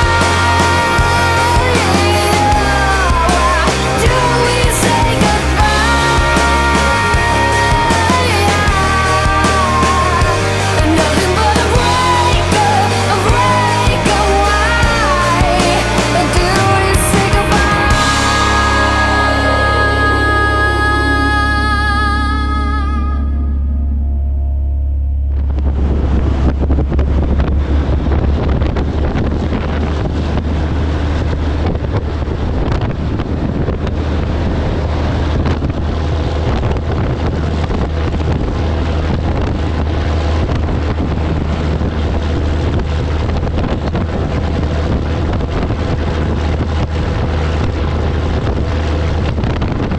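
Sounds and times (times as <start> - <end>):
diesel engine droning: 0.0 - 49.9
road noise: 0.0 - 49.9
wind rushing over microphone: 25.1 - 49.9.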